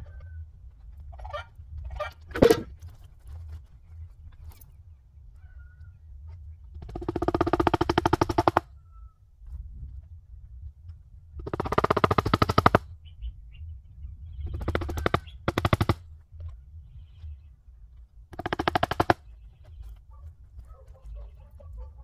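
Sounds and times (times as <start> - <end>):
low steady hum: 0.0 - 22.0
turkey gobbling: 1.1 - 2.7.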